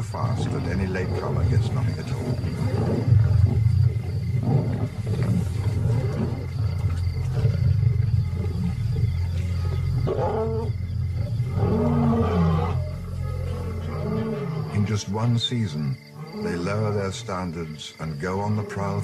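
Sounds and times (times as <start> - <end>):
loud pitched lion growls: 0.0 - 14.9
lions growling: 0.0 - 17.2.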